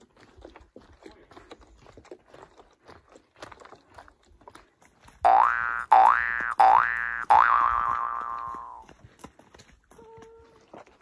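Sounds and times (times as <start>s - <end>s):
footsteps crunching on dirt: 0.0s - 11.0s
cartoon boing sound effect: 5.3s - 8.8s.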